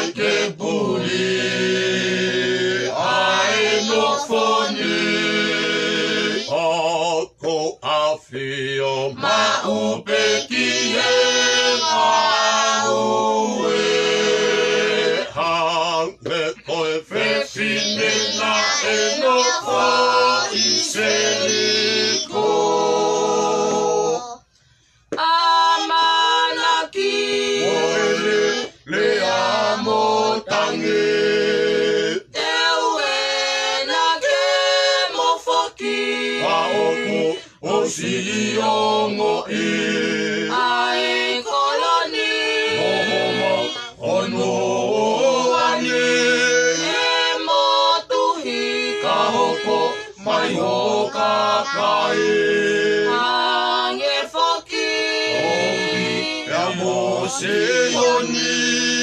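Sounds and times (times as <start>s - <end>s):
mixed choir singing unaccompanied: 0.0s - 24.4s, 25.1s - 59.0s.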